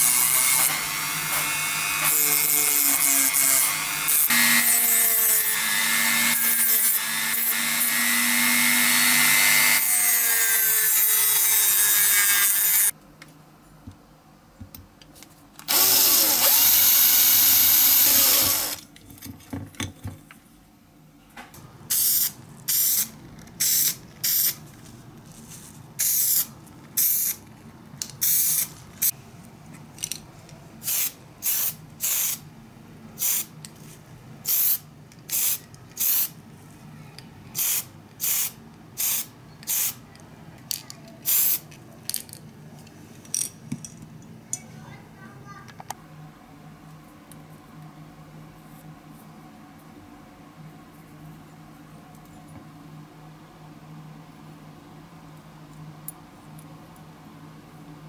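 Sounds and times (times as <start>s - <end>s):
rotary tool grinding metal: 0.0s - 12.9s, 15.7s - 18.8s
cordless drill boring into wood: 15.7s - 18.8s.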